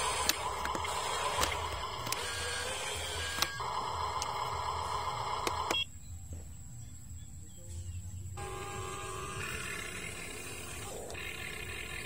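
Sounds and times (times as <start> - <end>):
small electric motor whine: 0.0 - 5.8, 8.4 - 12.0
sharp clicks: 0.0 - 5.9.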